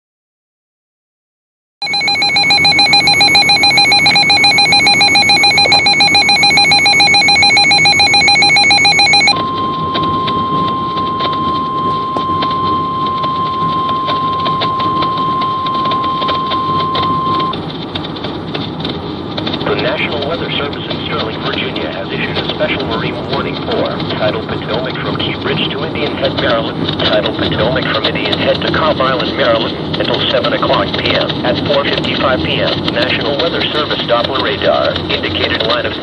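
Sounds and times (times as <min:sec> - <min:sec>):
rapidly pulsing alert beep: 0:01.8 - 0:17.5
steady alarm tone: 0:01.8 - 0:17.6.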